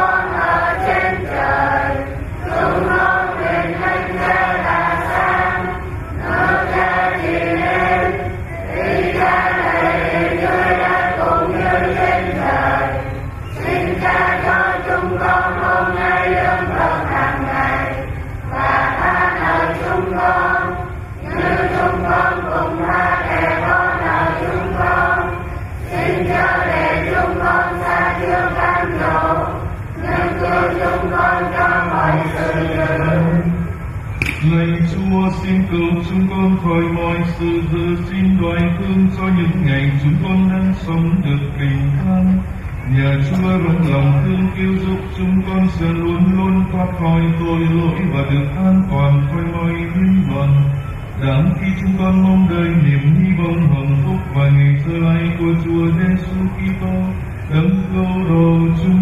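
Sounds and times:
voices chanting over sound system: 0.0s - 59.0s.

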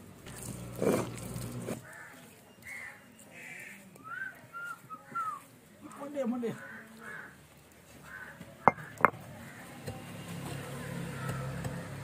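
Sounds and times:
crows cawing: 5.9s - 7.4s, 8.0s - 9.7s
stone roller knocking on stone: 8.7s - 9.2s.

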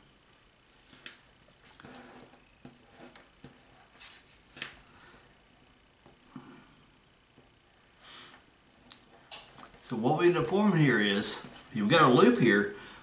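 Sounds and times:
cord rustling and rubbing: 0.4s - 4.7s.

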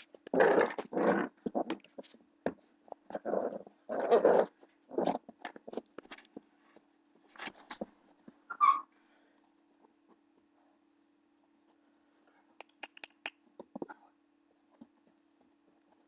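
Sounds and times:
faint steady hum: 0.0s - 16.0s
puppy growling: 0.2s - 2.1s, 3.0s - 5.8s.

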